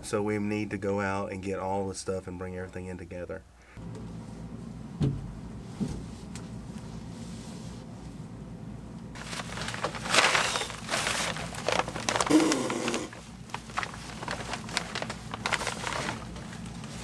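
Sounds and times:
dull thumps: 0:05.0 - 0:06.2
plastic sheeting crinkling and rustling: 0:09.2 - 0:17.0.

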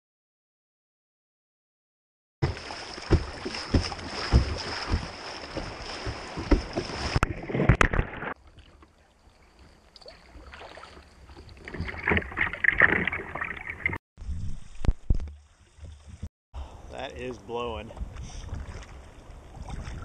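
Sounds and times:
water noise from kayak: 0:02.4 - 0:16.3, 0:17.4 - 0:20.0
wind buffeting microphone: 0:17.8 - 0:20.0.

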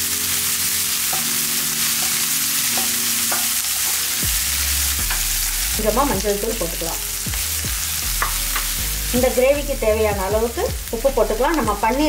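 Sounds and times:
onions sizzling in oil: 0:00.0 - 0:12.0
spatula knocking against pan: 0:08.1 - 0:08.8.

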